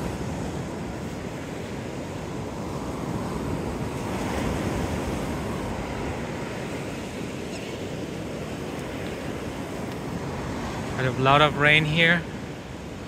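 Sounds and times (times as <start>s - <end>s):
surf breaking on beach: 0.0s - 13.0s.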